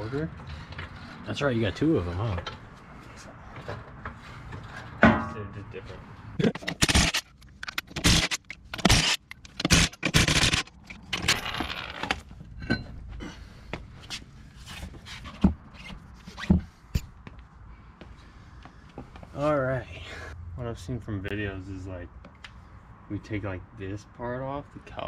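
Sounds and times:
wheel knocks and clunks: 3.5s - 5.6s.

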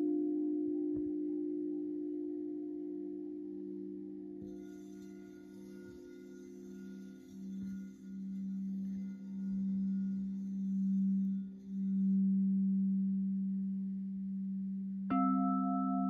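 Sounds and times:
singing bowl low tone: 0.0s - 16.0s
struck bowl ringing: 4.4s - 12.2s.

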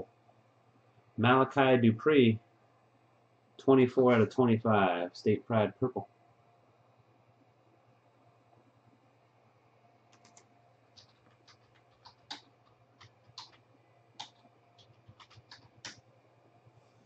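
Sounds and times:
faint keyboard typing: 10.0s - 16.1s.

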